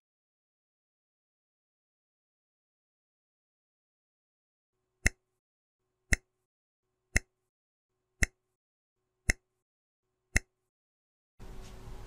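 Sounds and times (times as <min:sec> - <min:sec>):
sharp timer ticks: 0:07.2 - 0:07.5, 0:08.2 - 0:08.6.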